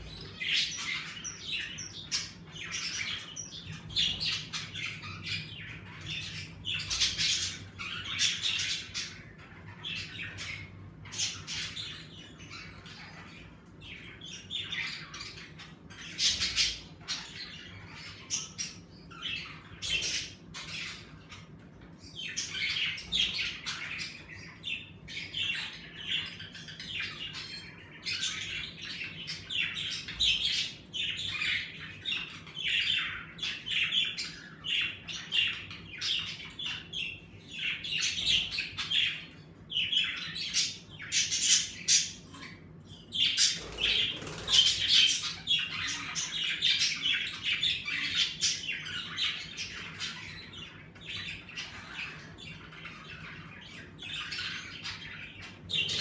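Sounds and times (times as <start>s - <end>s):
budgerigars chattering: 22.3s - 56.0s.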